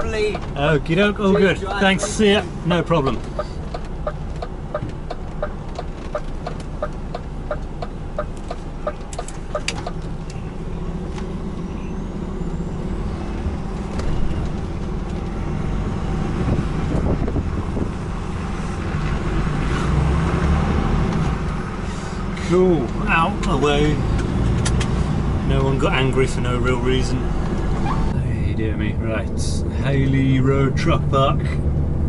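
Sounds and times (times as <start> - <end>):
diesel truck engine: 0.0 - 32.0
turn indicator ticking: 1.3 - 10.4.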